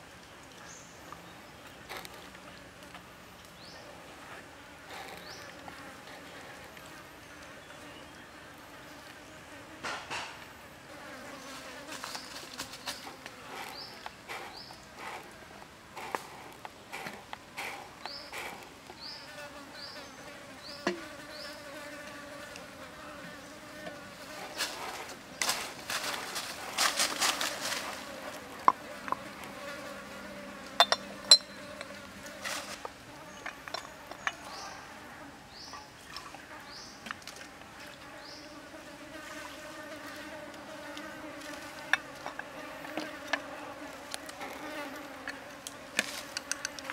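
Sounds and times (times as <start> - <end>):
insects buzzing: 0.7 - 46.9
rustling of dry leaves: 11.2 - 19.2, 23.5 - 36.0, 36.6 - 46.9
small clicks: 46.0 - 46.9.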